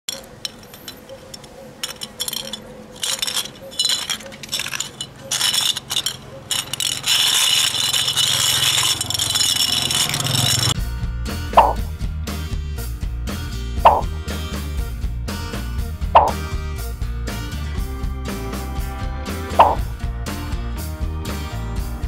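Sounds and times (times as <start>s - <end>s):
bulbs clicking and scraping on asphalt: 0.0s - 10.8s, 13.9s - 14.1s, 19.6s - 19.8s.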